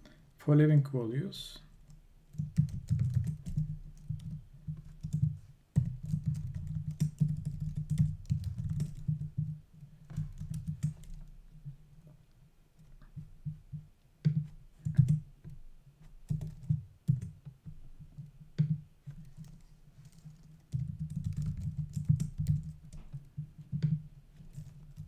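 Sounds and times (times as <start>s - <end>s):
typing on a computer keyboard: 1.9s - 11.3s, 14.2s - 15.6s, 16.2s - 17.5s, 18.6s - 25.0s.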